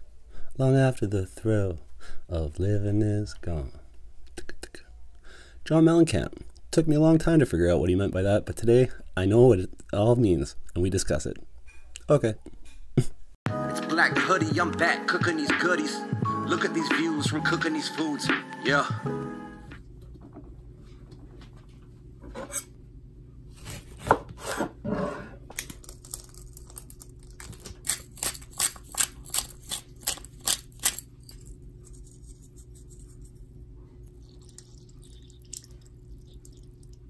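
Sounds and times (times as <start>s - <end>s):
steady low hum: 19.8s - 37.0s.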